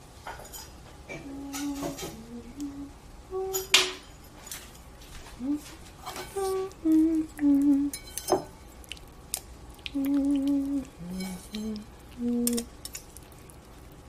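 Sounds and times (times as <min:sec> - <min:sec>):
person humming: 0:01.1 - 0:03.7, 0:05.4 - 0:07.9, 0:09.8 - 0:12.7.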